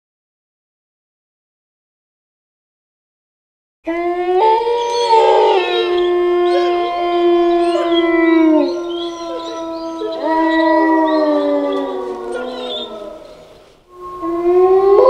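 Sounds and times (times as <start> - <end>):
wolves howling: 3.9 - 15.0.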